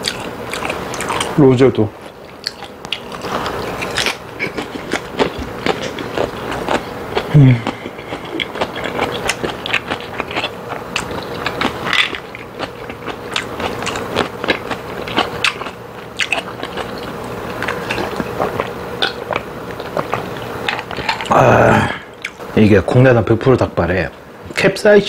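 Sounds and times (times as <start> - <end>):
wet chewing: 0.0 - 21.3
person drinking: 5.4 - 9.1.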